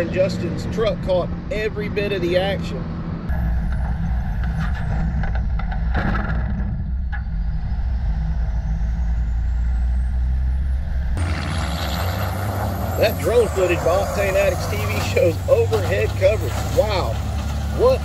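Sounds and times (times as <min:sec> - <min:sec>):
truck engine drone: 0:00.0 - 0:18.0
high whine: 0:03.3 - 0:14.8.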